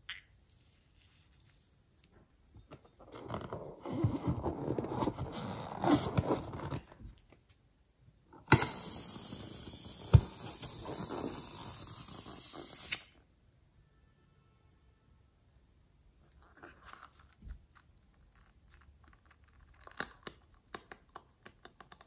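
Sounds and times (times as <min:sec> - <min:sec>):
rubber balloon squeezed and crackling: 0:03.0 - 0:07.2
steady hiss: 0:08.5 - 0:13.2.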